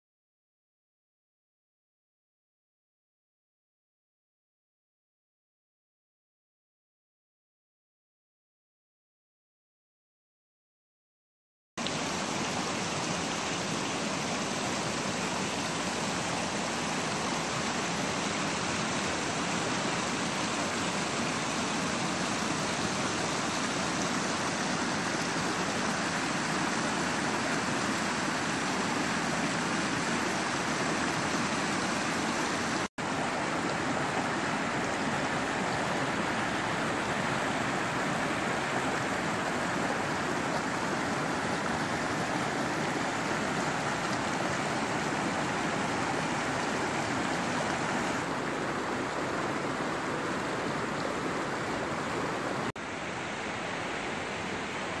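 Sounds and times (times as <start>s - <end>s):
creek rushing over rocks: 11.8s - 55.0s.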